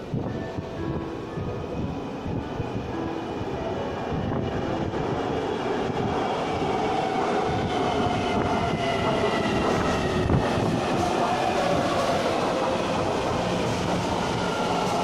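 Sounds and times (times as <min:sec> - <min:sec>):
metro train rumbling: 0:00.0 - 0:15.0
whining train tones: 0:00.0 - 0:15.0.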